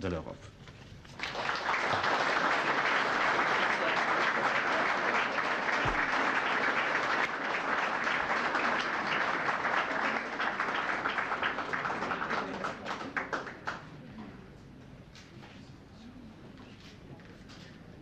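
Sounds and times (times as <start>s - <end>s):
audience applauding: 1.1s - 13.9s.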